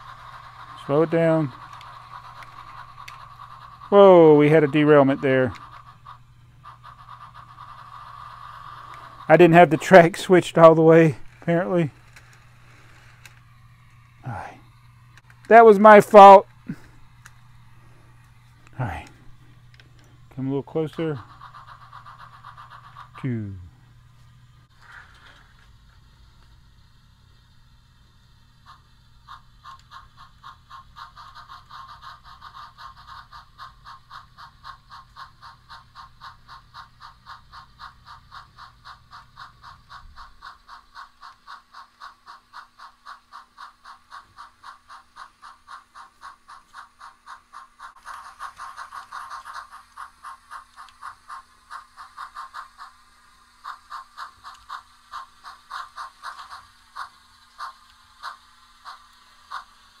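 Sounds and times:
low hum: 0.0 - 31.7
simulated steam locomotive chuffing: 0.0 - 60.0.

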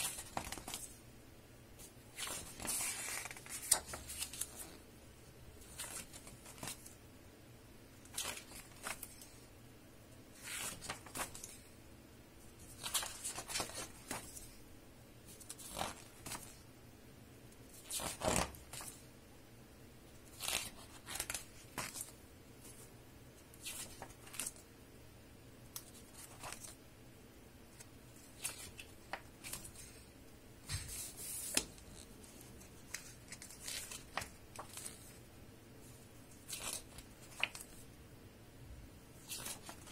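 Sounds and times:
book pages turning: 0.0 - 1.0, 1.8 - 4.8, 5.6 - 7.0, 8.0 - 9.4, 10.4 - 11.7, 12.6 - 14.6, 15.3 - 16.6, 17.7 - 19.1, 20.2 - 22.9, 23.5 - 24.6, 25.7 - 26.8, 27.8 - 30.0, 30.6 - 35.3, 35.9 - 37.8, 39.2 - 39.9.

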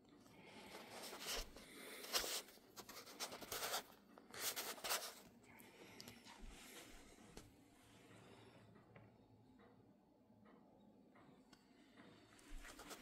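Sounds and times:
scratchy rubbing and rustling: 0.7 - 5.4, 12.5 - 13.0.

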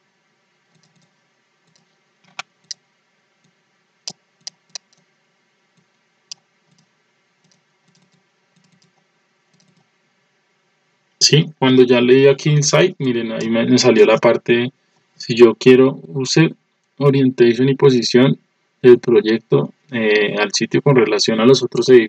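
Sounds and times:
faint steady hiss: 0.0 - 22.0
mouse and keyboard clicks: 0.7 - 1.1, 4.1 - 5.1, 6.3 - 9.9.

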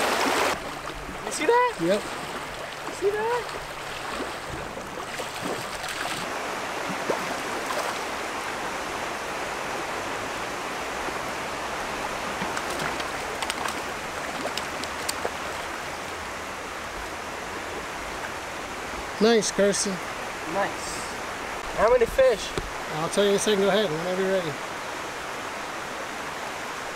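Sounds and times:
stream water rushing: 0.0 - 26.9
faint clicks: 12.4 - 13.8, 14.4 - 15.3.

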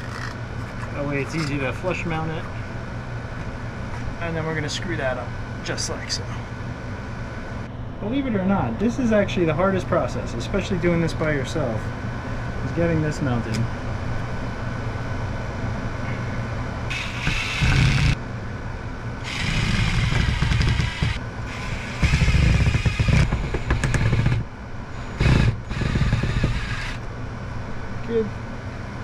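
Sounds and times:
steady low hum: 0.0 - 29.0
power drill driving screws: 16.9 - 18.2, 19.3 - 24.4, 25.2 - 27.0.

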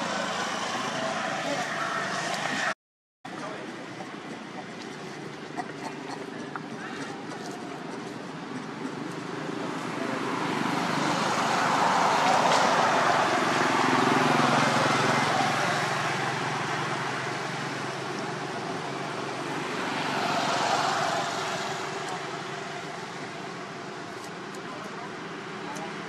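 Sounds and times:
vehicle passing by: 0.0 - 2.8, 8.8 - 24.5.

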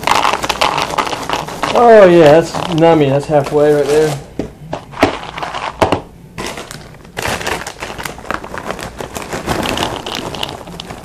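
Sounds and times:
snack bag crackling: 0.0 - 4.1, 6.4 - 11.0
snacks poured into bowl: 6.4 - 11.0.

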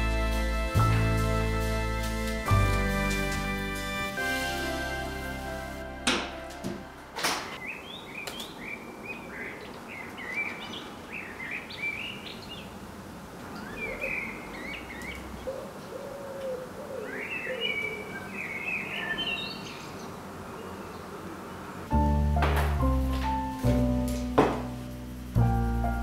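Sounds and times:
birds chirping and singing: 7.3 - 12.8, 13.5 - 21.6
low bird calls: 13.5 - 21.7.

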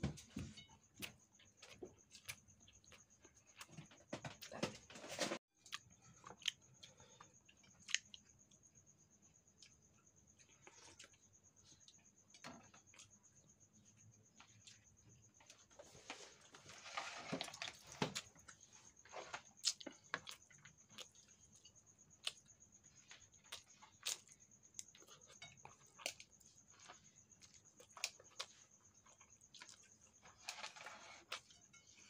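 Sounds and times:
spoon scraping rice: 30.2 - 32.0.

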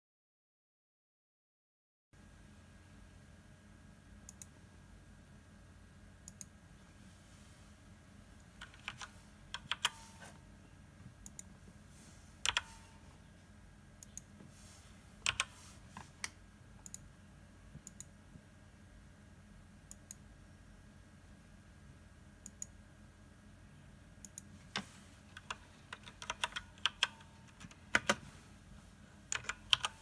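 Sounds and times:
faint electrical hum: 2.2 - 30.0
mouse clicks: 4.3 - 4.5, 15.2 - 17.1, 17.8 - 18.1
keyboard keystrokes: 8.6 - 10.1, 12.4 - 12.8, 15.2 - 15.5, 25.4 - 28.2, 29.3 - 30.0.

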